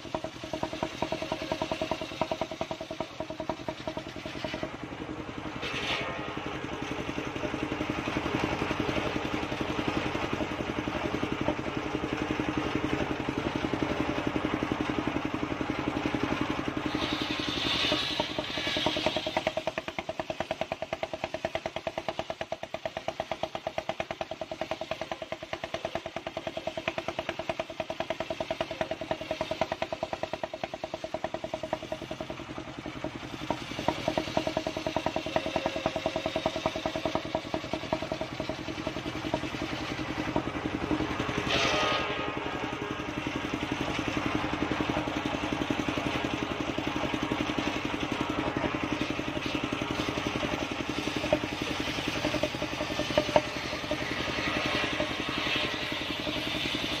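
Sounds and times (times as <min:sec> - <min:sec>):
circular saw running: 0:00.0 - 0:57.0
saw blade cutting wood: 0:16.8 - 0:22.2, 0:41.0 - 0:42.6, 0:48.9 - 0:57.0.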